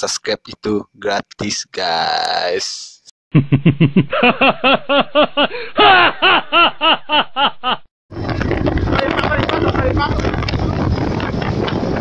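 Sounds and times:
person laughing: 0:03.3 - 0:07.8
wind noise on microphone: 0:08.1 - 0:12.0.

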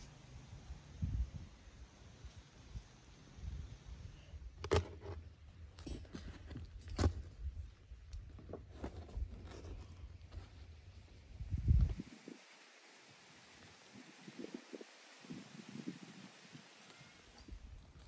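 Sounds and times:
light taps and scrapes of flatbreads: 0:04.6 - 0:11.2.

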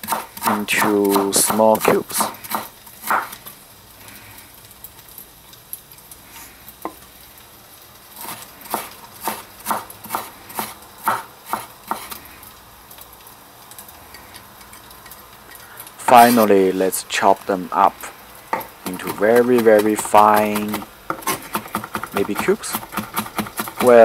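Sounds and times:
cleaver chopping on wooden board: 0:00.0 - 0:03.3, 0:08.7 - 0:12.1, 0:18.5 - 0:24.0.

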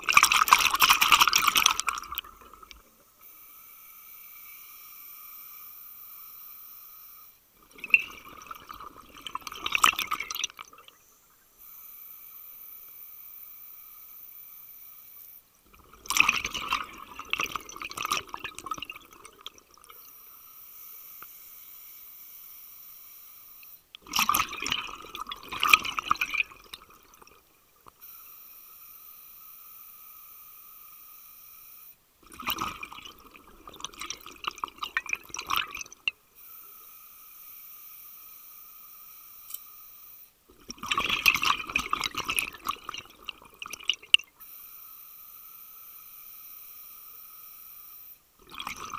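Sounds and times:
underwater air bubbling: 0:00.0 - 0:02.9
faint steady whine: 0:00.0 - 0:48.9.

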